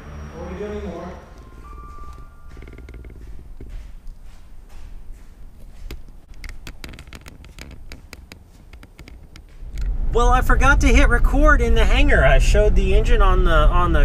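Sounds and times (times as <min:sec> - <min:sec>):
light taps and clicks: 0:02.1 - 0:09.9
low steady rumble: 0:07.8 - 0:14.0.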